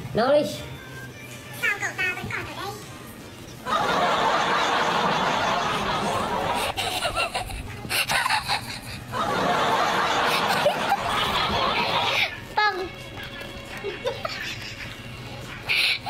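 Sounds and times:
laughter: 0:03.6 - 0:12.5, 0:13.6 - 0:16.0.

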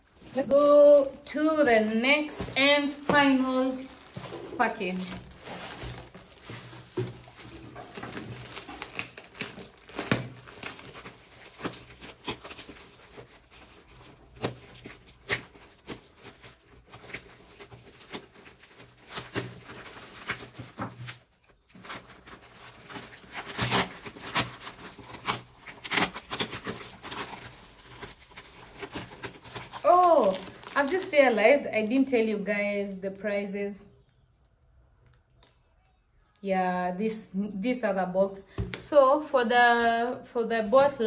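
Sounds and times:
wrapping crinkling and tearing: 0:00.0 - 0:32.4.

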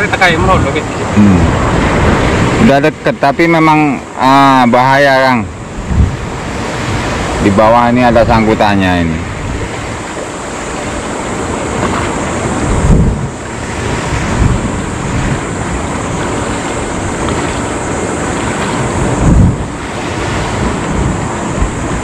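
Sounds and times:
water rushing: 0:00.0 - 0:22.0
wind buffeting microphone: 0:00.0 - 0:22.0
wind rushing: 0:00.0 - 0:22.0.

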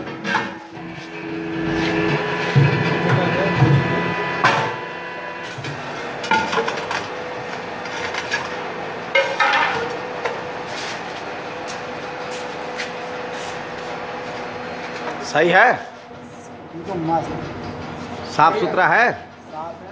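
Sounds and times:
metal clanks and knocks: 0:00.0 - 0:00.8, 0:01.9 - 0:07.1, 0:09.1 - 0:10.0, 0:17.2 - 0:18.1
steady machine hum: 0:00.0 - 0:19.9.

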